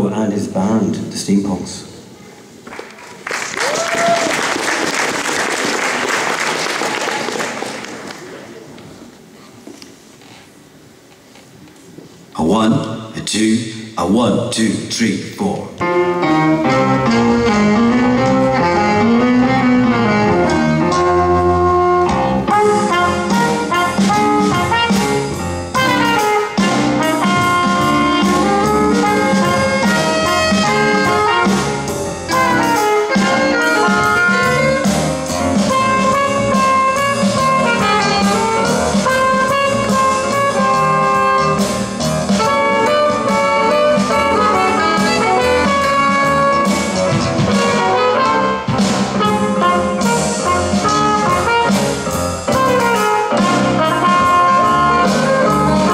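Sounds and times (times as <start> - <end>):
drum kit: 15.8 - 55.9
saxophone: 15.8 - 55.9
trumpet melody: 15.8 - 55.9.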